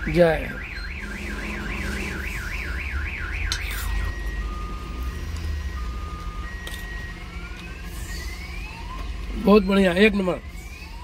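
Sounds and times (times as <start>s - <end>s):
car alarm two-tone beep: 0.0s - 7.2s
car alarm warbling: 0.0s - 11.0s
low rumble: 1.0s - 5.8s.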